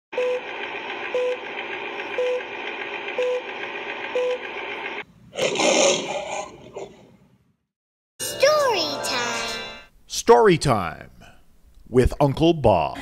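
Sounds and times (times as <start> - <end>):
lion roaring: 5.3 - 7.1.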